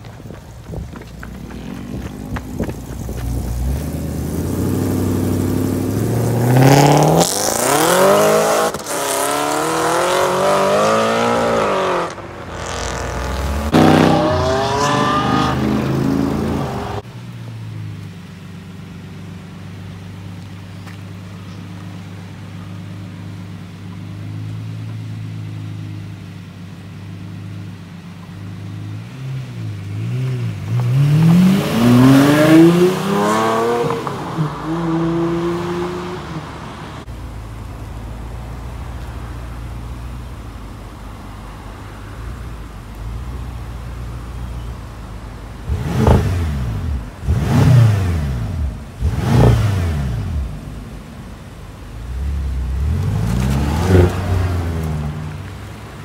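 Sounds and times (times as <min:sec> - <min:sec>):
car engine running at low revs: 0:00.0 - 0:56.0
sports car engine revving: 0:01.4 - 0:17.0, 0:28.6 - 0:38.3, 0:45.5 - 0:56.0.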